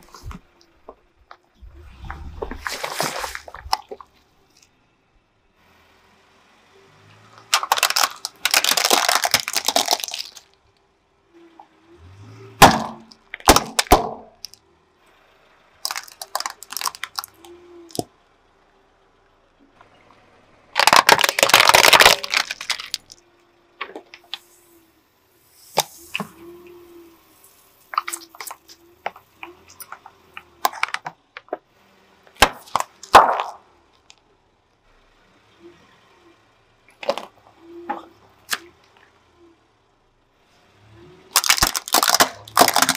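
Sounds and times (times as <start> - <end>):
plastic cracking and crunching: 7.4 - 10.6, 12.6 - 14.6, 15.8 - 18.1, 20.8 - 23.2, 27.9 - 31.6, 32.4 - 34.2, 41.3 - 42.9
sharp plastic cracks: 7.4 - 10.6, 12.6 - 14.6, 15.8 - 18.1, 20.8 - 23.2, 27.9 - 31.6, 32.4 - 34.2, 41.3 - 42.9.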